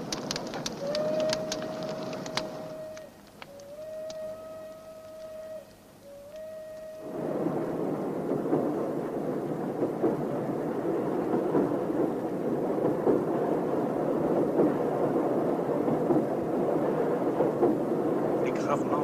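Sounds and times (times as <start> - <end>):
train running: 0.0 - 5.6.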